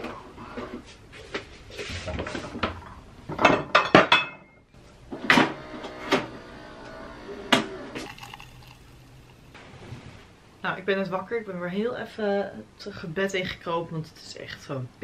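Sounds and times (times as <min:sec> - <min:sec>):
coffee machine pump humming: 0:07.1 - 0:09.6
coffee running into mug: 0:07.9 - 0:09.5.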